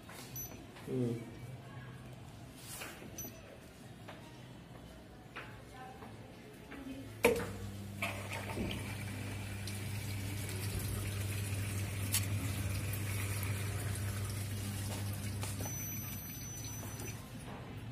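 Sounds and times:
electrical hum: 7.0s - 17.9s
water rushing into drum: 8.0s - 15.6s.

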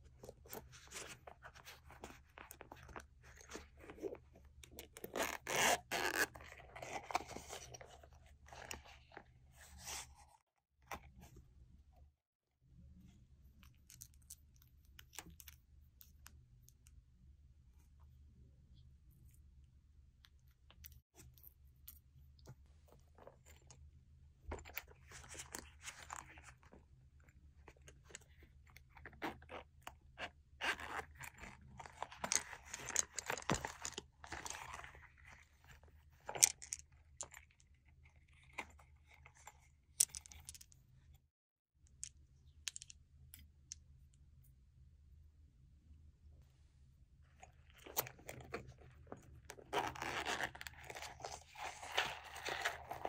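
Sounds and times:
zipper being pulled: 5.0s - 6.4s, 49.6s - 53.0s
scratchy rustling: 47.8s - 53.0s.

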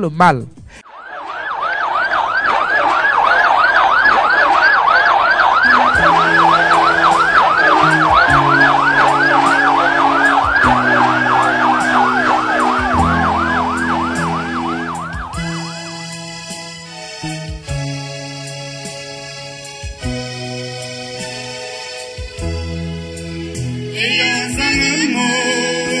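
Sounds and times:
sirens yelping: 0.9s - 17.2s
slow siren wail: 0.9s - 17.2s
slow music with low notes: 5.6s - 26.0s.

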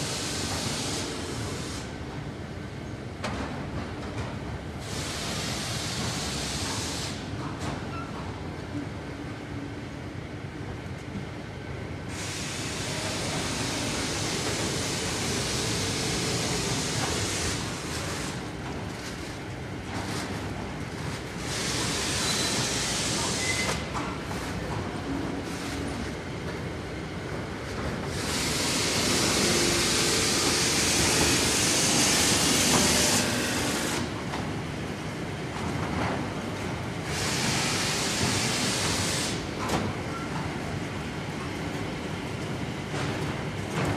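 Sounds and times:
loud machine hiss: 0.0s - 2.0s, 4.8s - 7.3s, 12.1s - 18.5s, 21.4s - 23.9s, 28.1s - 34.1s, 37.0s - 39.5s.

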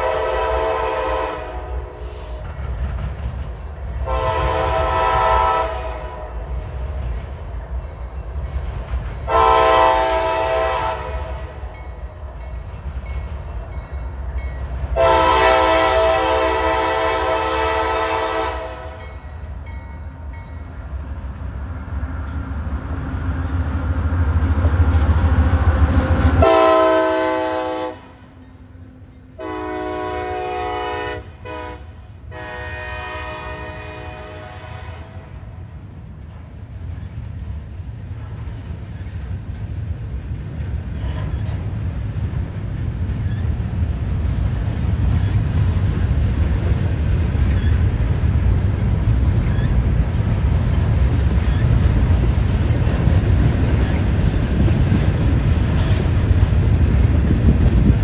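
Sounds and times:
locomotive air horn blasts: 0.0s - 2.4s, 4.0s - 6.4s, 9.3s - 11.6s, 15.0s - 19.1s, 26.1s - 28.4s, 29.4s - 35.6s
rail cars rolling past: 0.0s - 58.0s.

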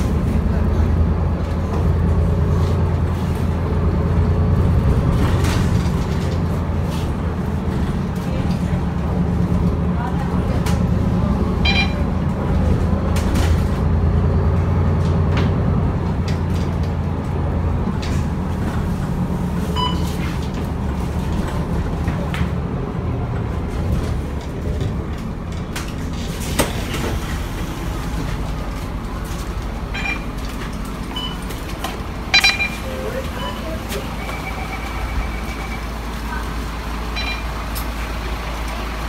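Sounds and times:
bus engine rumble: 0.0s - 39.0s
short electronic beeps: 11.6s - 12.0s, 19.8s - 20.1s, 30.0s - 30.3s, 32.3s - 36.0s, 37.2s - 37.6s.

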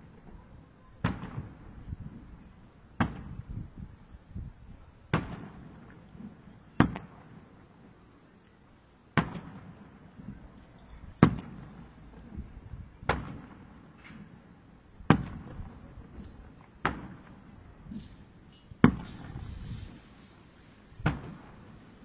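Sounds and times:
firework shells bursting: 16.8s - 22.0s.

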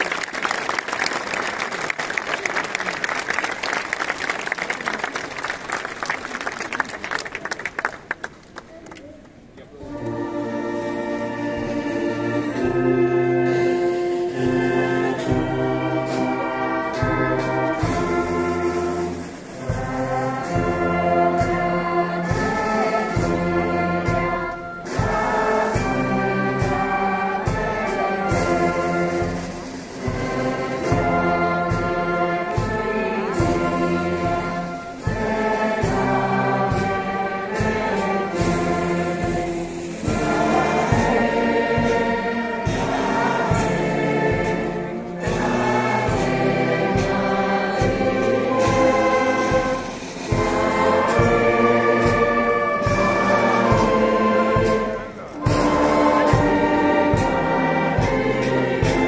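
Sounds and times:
wind band playing a slow hymn: 0.0s - 59.0s.

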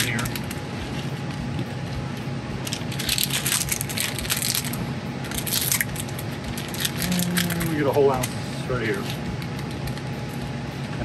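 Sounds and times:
foil bag crinkling: 0.0s - 8.3s
steady low hum: 0.0s - 11.0s.

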